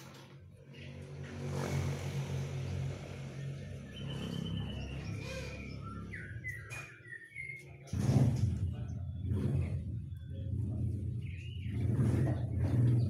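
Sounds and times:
bird whistling song notes: 0:03.9 - 0:07.9.

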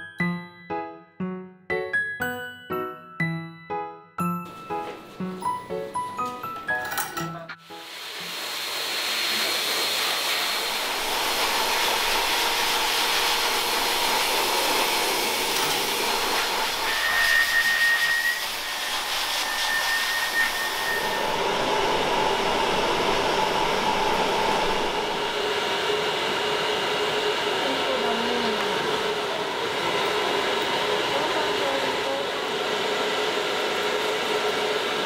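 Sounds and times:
grooming dryer blowing air: 0:07.6 - 0:35.0.

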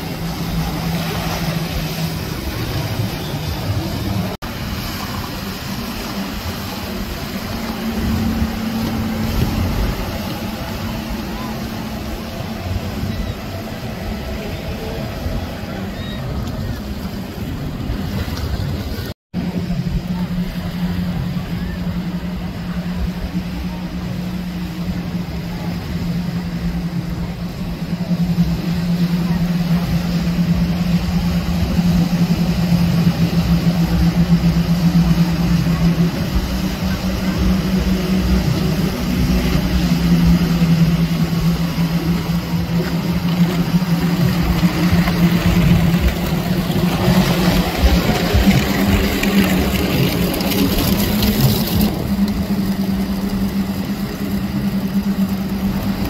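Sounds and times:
boat engine drone: 0:00.0 - 0:56.0
rush of spray and wind: 0:00.0 - 0:56.0.

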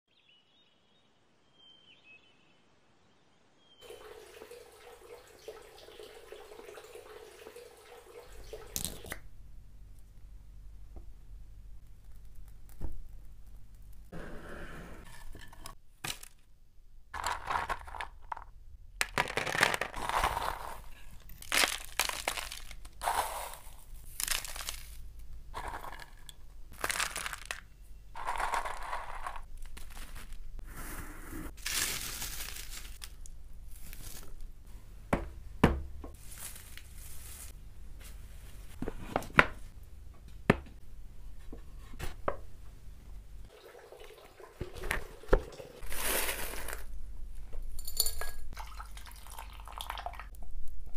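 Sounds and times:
dried herbs crackling and rustling: 0:20.0 - 0:25.8, 0:26.7 - 0:30.6, 0:31.5 - 0:34.5, 0:36.2 - 0:37.6.

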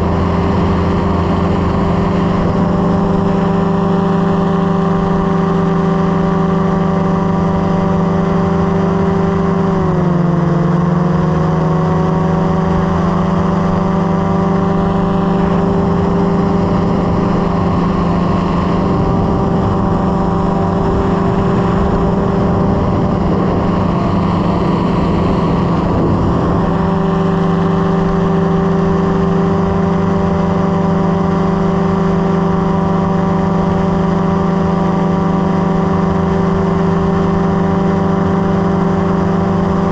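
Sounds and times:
light aircraft engine droning: 0:00.0 - 0:39.9.

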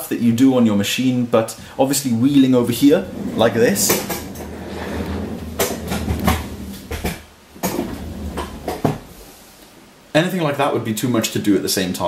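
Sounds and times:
chair casters rolling on floor: 0:02.7 - 0:09.1.

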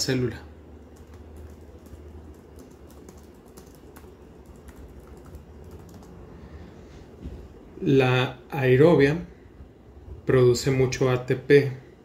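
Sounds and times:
low steady hum: 0:00.0 - 0:12.0
keyboard typing clicks: 0:00.9 - 0:06.2.

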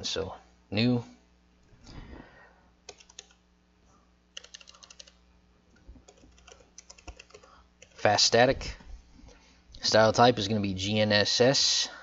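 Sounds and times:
typing on computer keyboard: 0:02.9 - 0:03.4, 0:04.4 - 0:05.2, 0:06.0 - 0:08.1.

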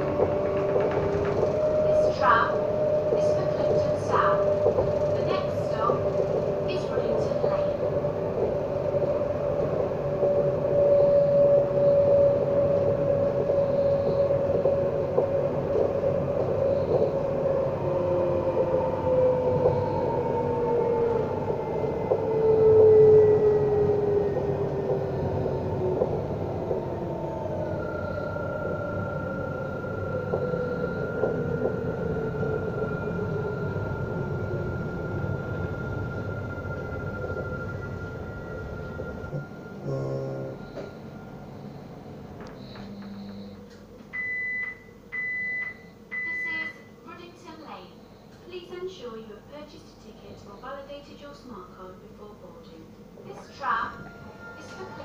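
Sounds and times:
wheels rumbling on rail: 0:00.0 - 0:44.1
tram motor whine: 0:00.0 - 0:48.5, 0:53.0 - 0:55.0
faint higher whine: 0:08.6 - 0:18.4, 0:27.3 - 0:47.0
high whine: 0:35.4 - 0:41.8
motor whine falling in pitch: 0:39.8 - 0:40.9.

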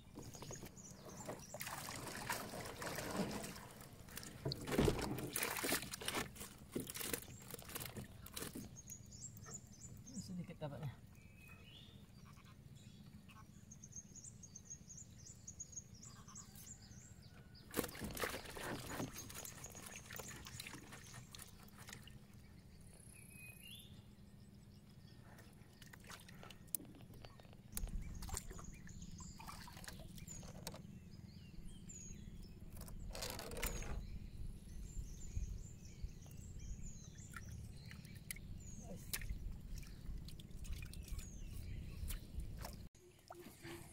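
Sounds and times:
birds chirping: 0:00.0 - 0:43.9
fishing net knocks and rustles: 0:00.1 - 0:08.8, 0:17.7 - 0:22.0.

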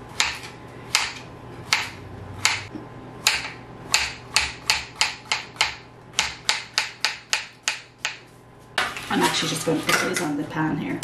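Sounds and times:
knife chopping on cutting board: 0:00.2 - 0:09.0.

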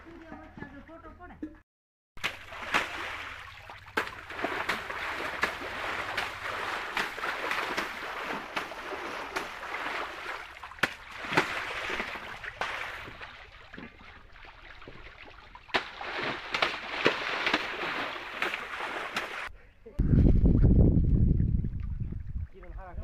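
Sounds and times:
water splashing in a tank: 0:02.2 - 0:19.5.

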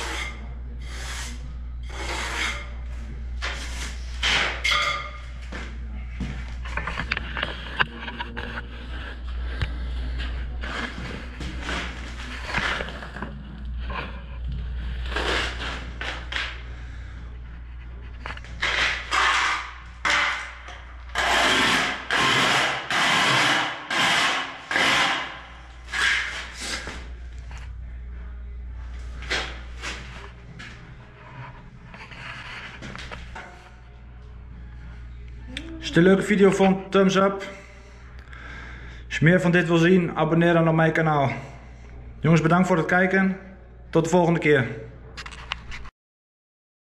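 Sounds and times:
tool scraping mortar: 0:00.0 - 0:04.9, 0:14.9 - 0:16.6, 0:18.2 - 0:27.0
steady low hum: 0:00.0 - 0:45.7.

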